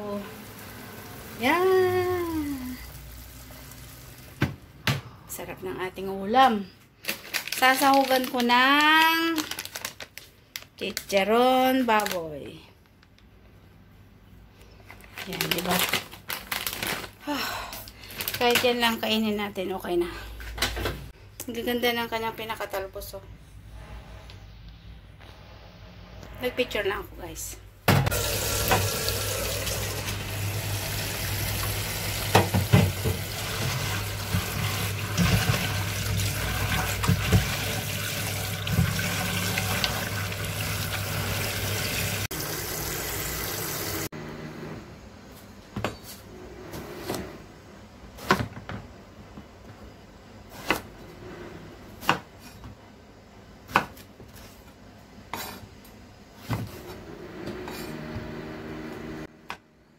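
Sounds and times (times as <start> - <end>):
knocks of vegetables rinsed: 27.9 - 42.5
tap water running into steel bowl: 28.1 - 44.0.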